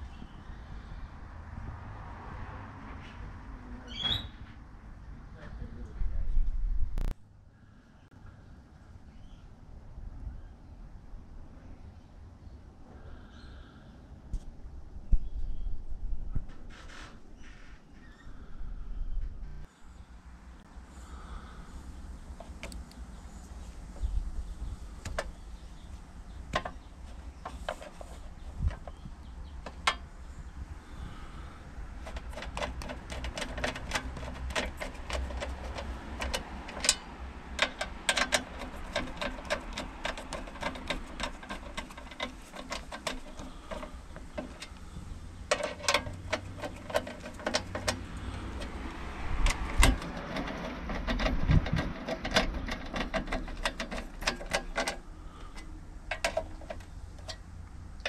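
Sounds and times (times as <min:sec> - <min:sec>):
socket ratchet clicking: 0:32.0 - 0:57.5.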